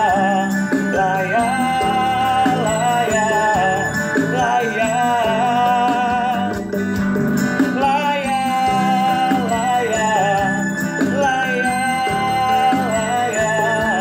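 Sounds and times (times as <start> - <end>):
man singing wordless melody: 0.0 - 6.9, 7.6 - 14.0
strummed guitar chords: 0.0 - 14.0.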